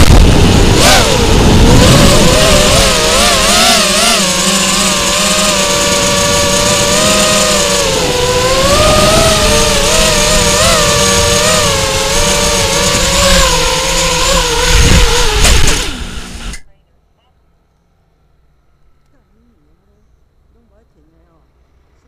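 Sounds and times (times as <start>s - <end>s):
rc car motor whining: 0.0s - 16.7s.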